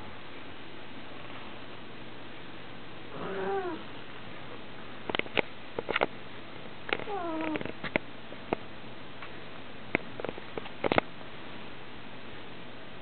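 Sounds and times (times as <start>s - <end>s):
cat meowing: 3.2s - 3.8s, 7.1s - 7.6s.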